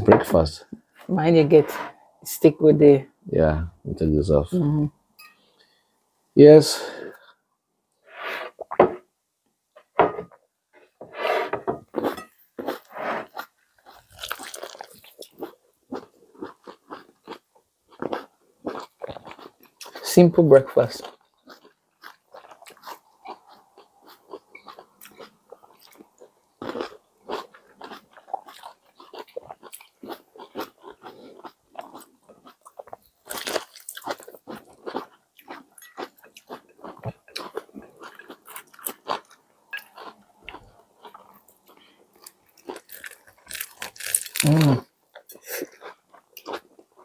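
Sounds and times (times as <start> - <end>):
people chewing sandwiches: 11.9 - 47.0.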